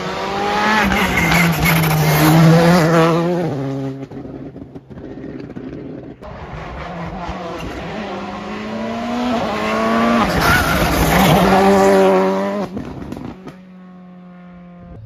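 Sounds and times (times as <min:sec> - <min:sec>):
rally car passing at speed: 0:00.0 - 0:15.0.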